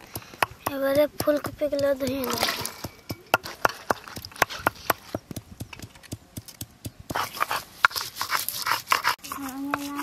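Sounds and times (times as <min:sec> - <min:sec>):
stone roller grinding on slab: 0:07.1 - 0:10.0.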